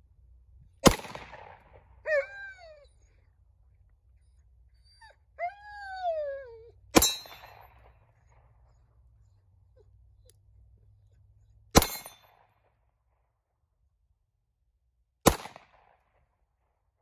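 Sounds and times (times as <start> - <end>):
pistol shots: 0.8 - 1.8, 11.8 - 12.2, 15.2 - 15.9
dog howling: 2.1 - 3.3, 4.8 - 6.8.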